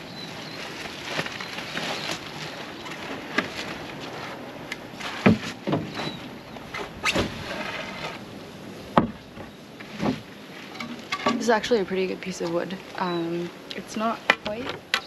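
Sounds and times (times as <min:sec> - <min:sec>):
wooden boards knocking: 0:09.0 - 0:10.2.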